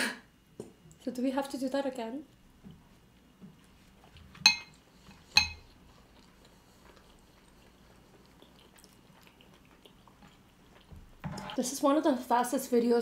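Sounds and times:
metal utensil clinking on dish: 4.5s - 4.8s, 5.4s - 5.6s.

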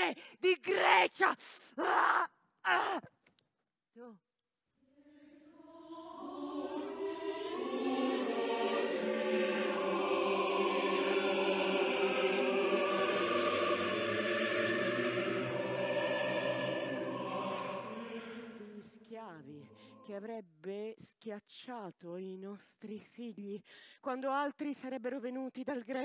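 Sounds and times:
choir singing: 5.0s - 20.2s.

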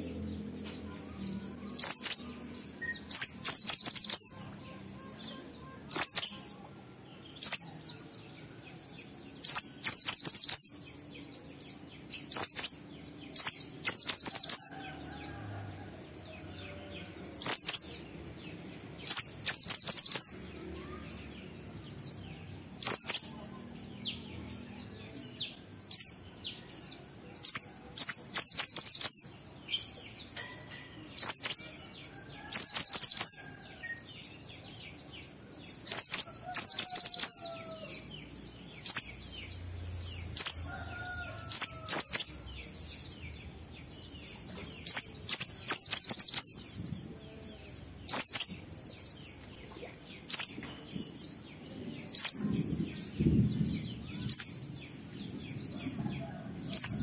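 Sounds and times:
bird high rapid chirping twitters: 1.8s - 4.4s, 5.9s - 6.5s, 7.4s - 7.8s, 9.4s - 10.9s, 12.1s - 14.8s, 17.4s - 17.9s, 19.0s - 21.0s, 22.8s - 23.3s, 25.8s - 26.2s, 27.5s - 29.3s, 31.2s - 31.7s, 35.8s - 37.6s, 44.4s - 46.7s, 48.0s - 48.6s, 50.2s - 50.6s, 52.1s - 54.6s.

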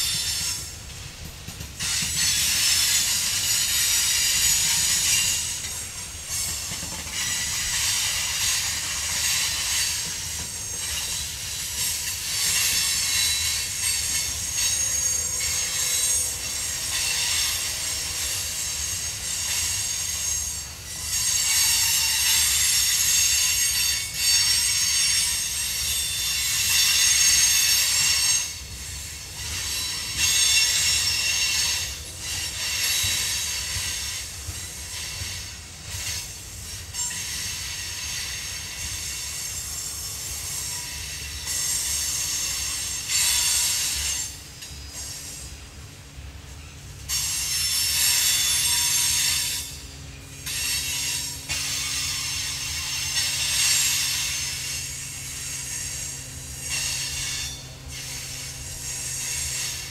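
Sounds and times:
rumble of wheels on rail: 0.0s - 59.9s
train wheels squealing: 0.0s - 59.9s.

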